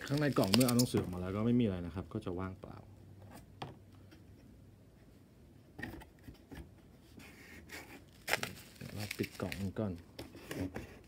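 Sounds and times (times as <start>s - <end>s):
cardboard rubbing against cardboard: 7.0s - 11.0s.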